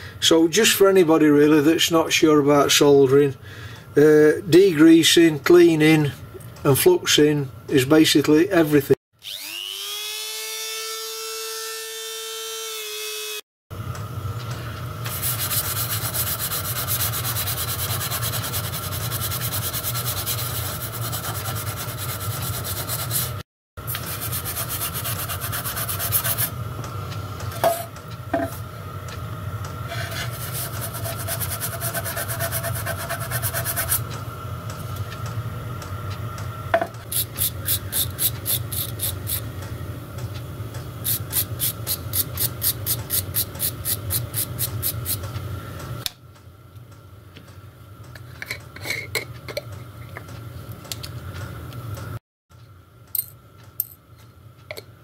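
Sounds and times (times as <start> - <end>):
small brush scrubbing: 15.1 - 26.5, 29.9 - 34.0
wire wool rubbing on metal: 15.1 - 26.5, 29.9 - 34.1.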